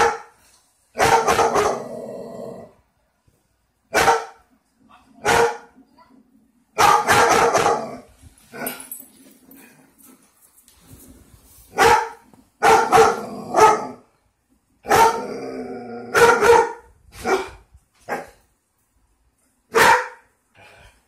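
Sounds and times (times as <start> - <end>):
dog barking loudly: 0.0 - 0.3, 1.0 - 1.8, 3.9 - 4.4, 5.2 - 5.7, 6.8 - 8.1, 11.7 - 14.0, 14.8 - 15.3, 16.1 - 18.4, 19.7 - 20.3.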